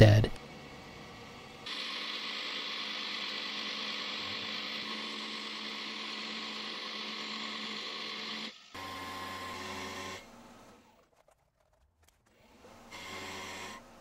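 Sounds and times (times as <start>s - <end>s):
milling machine cutting metal: 1.6s - 10.3s, 12.6s - 14.0s.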